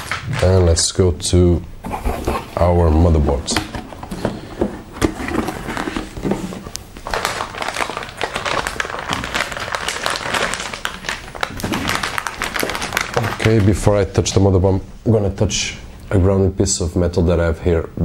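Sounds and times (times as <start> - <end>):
plastic bag crinkling: 2.2 - 14.5.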